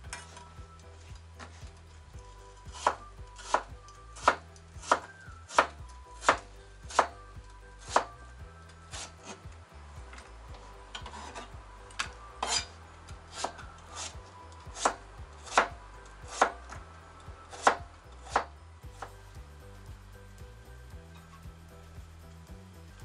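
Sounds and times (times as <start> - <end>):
knife striking cutting board: 2.7 - 7.2, 7.8 - 8.1, 12.0 - 12.7, 13.3 - 16.6.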